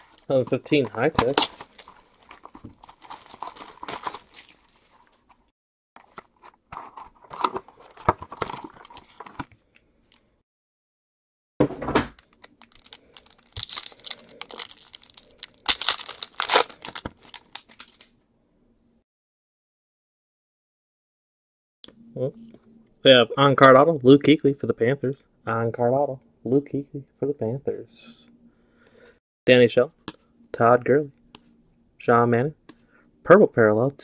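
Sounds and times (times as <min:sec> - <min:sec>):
wrappers crinkling and tearing: 0:01.0 - 0:05.2, 0:12.4 - 0:18.1.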